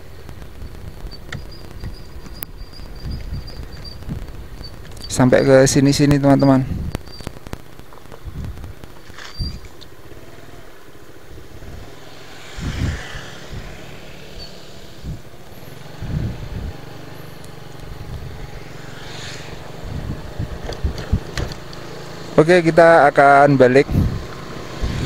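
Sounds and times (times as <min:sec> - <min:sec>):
motorcycle engine running: 0:00.0 - 0:25.0
low thumps: 0:17.7 - 0:22.0.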